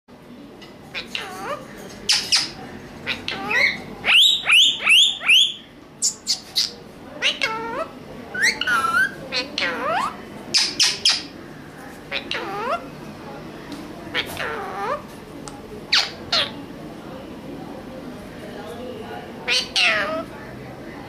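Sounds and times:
parakeets calling harshly: 0.9s - 12.8s, 14.1s - 15.1s, 15.9s - 16.6s, 19.4s - 20.3s.

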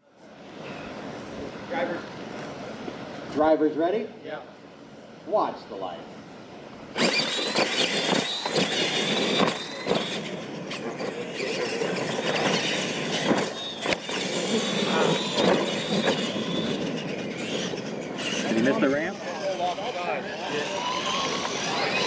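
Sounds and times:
rc truck motors whining: 6.4s - 22.0s
tyres churning dirt: 6.9s - 22.0s.

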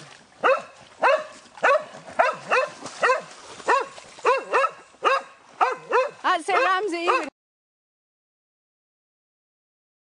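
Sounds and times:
dog barking: 0.4s - 7.3s.

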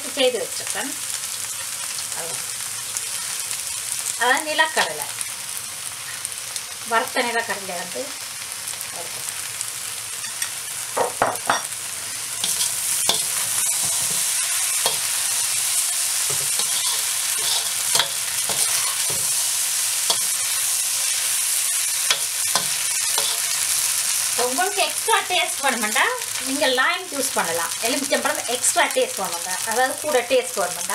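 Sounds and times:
noodles sizzling in a wok: 0.0s - 30.9s
metal spatula scraping a pan: 12.0s - 23.8s.

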